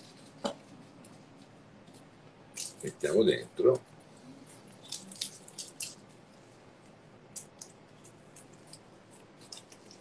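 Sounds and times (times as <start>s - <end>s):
knife peeling garlic skin: 4.7s - 6.0s, 7.4s - 10.0s.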